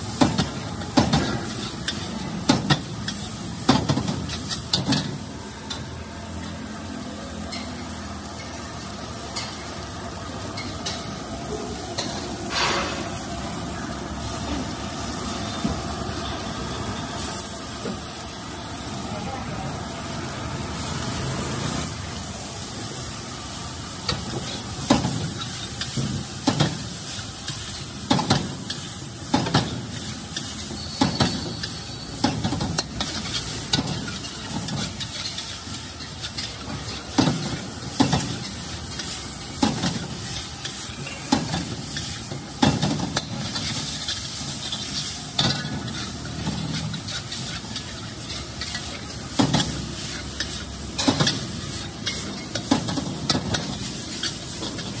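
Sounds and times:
noodles sizzling in a wok: 0.0s - 55.0s
metal ladle scraping and clanking wok: 12.0s - 13.4s, 24.1s - 55.0s.

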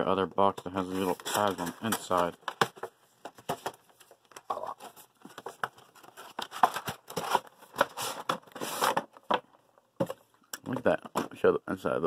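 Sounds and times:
plastic packaging rustling: 0.8s - 9.4s.

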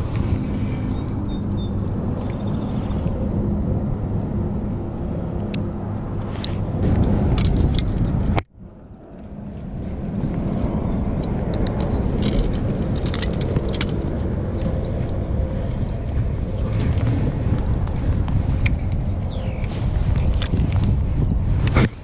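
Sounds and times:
wind rumbling over microphone: 0.0s - 22.0s
fishing tackle clicks: 11.2s - 15.2s.

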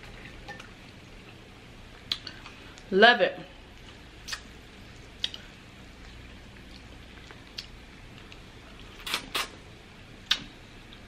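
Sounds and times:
wet mouth smacks while eating: 4.2s - 4.5s, 5.2s - 5.4s, 9.0s - 9.6s, 10.2s - 10.5s.

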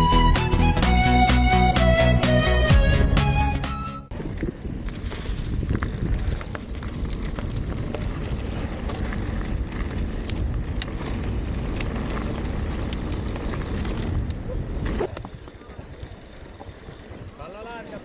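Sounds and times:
stones and bike rattling: 4.1s - 18.0s
tyres on loose ground: 4.1s - 18.0s
wind buffeting microphone: 4.1s - 18.0s.

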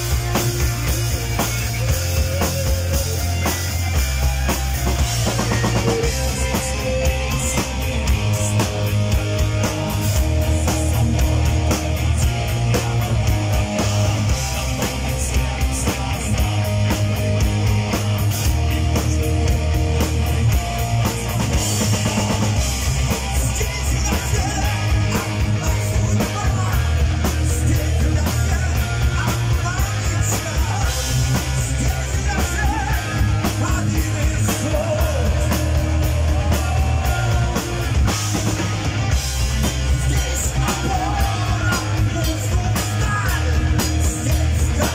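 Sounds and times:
heavy metal band playing: 0.0s - 44.9s
man singing: 5.1s - 17.4s, 21.3s - 38.7s, 39.6s - 44.9s.

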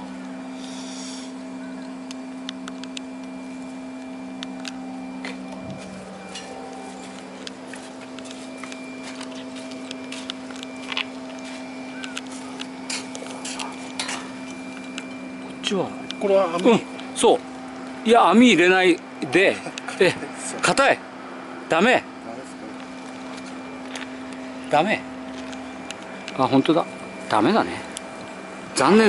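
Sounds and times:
low machine hum: 0.0s - 29.0s.

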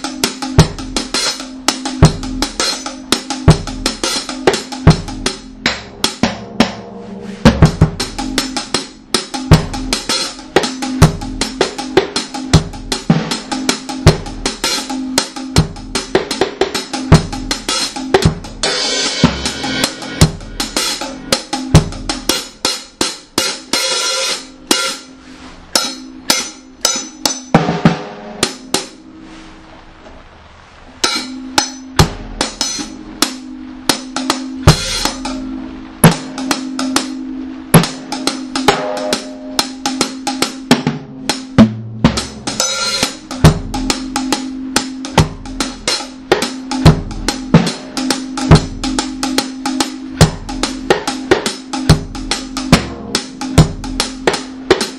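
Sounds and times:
drum kit playing a steady rhythm: 0.0s - 29.5s, 31.0s - 54.9s
held low note: 4.8s - 11.5s, 24.5s - 40.1s.

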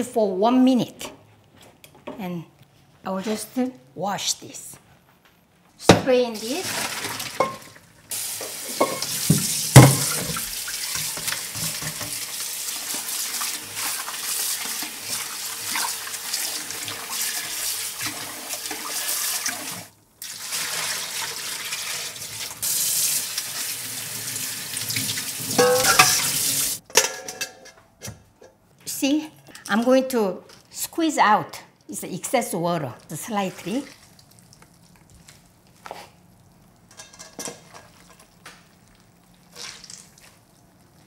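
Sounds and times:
tap water streaming into metal sink: 6.7s - 23.7s.

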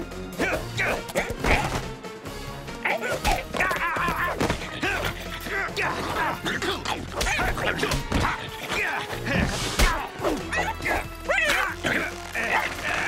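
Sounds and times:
cartoon action music: 2.8s - 13.0s.

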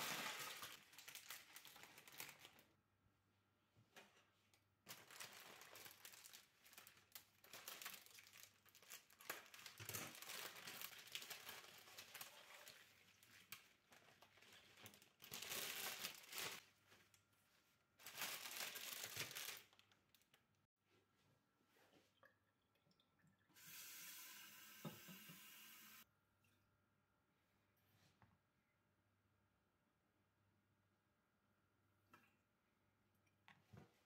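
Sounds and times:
plastic wrapping crinkling: 0.0s - 2.7s, 4.9s - 17.1s, 18.0s - 20.4s.

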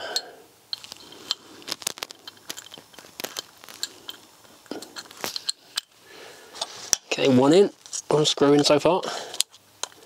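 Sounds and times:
screwdriver clicking and scraping: 0.7s - 6.0s
small metal parts handled: 0.7s - 6.0s.

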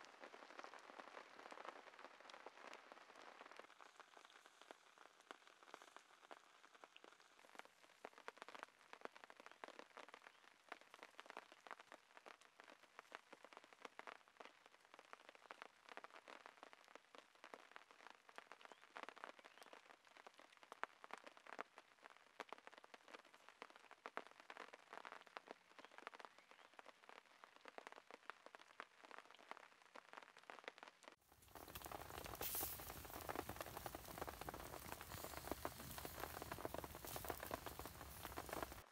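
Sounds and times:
campfire coals crackling: 0.0s - 9.2s, 31.2s - 38.9s
steady sizzling hiss: 31.2s - 38.9s.

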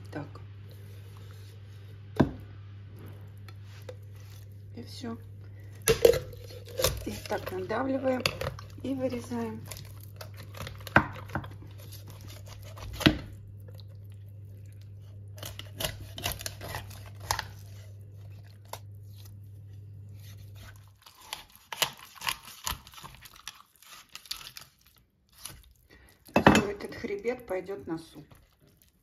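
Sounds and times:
low hum: 0.0s - 20.8s
skin and flesh tearing: 5.7s - 7.6s, 9.5s - 14.0s, 14.8s - 19.4s, 20.2s - 26.3s
knife cracking through bones: 5.9s - 7.5s, 15.4s - 17.6s, 20.6s - 25.7s.

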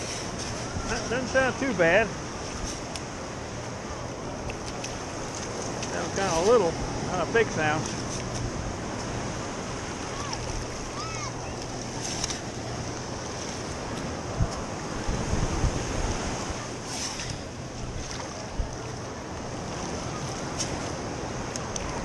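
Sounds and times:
shallow surf washing: 0.0s - 22.0s
wind on microphone: 6.7s - 22.0s.

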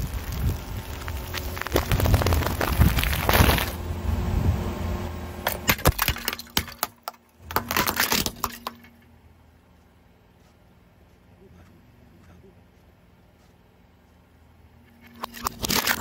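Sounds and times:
tyre crushing foil packets: 0.0s - 3.8s.

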